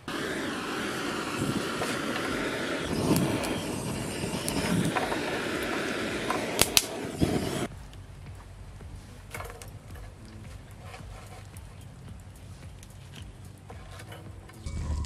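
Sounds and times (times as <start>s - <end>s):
butane torch hissing: 0.0s - 7.7s.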